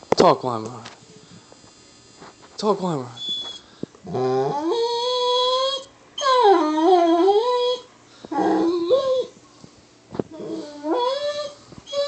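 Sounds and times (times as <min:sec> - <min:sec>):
dog howling: 0:04.1 - 0:09.4, 0:10.3 - 0:12.0.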